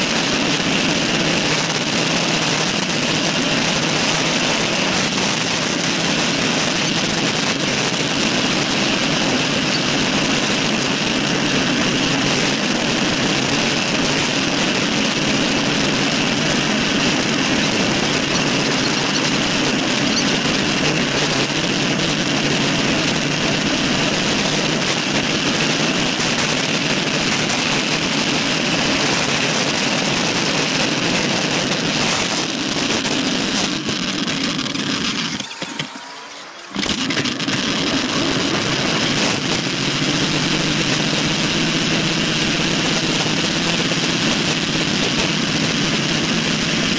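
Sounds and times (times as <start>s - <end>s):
bicycle tyre hum: 0.0s - 35.1s.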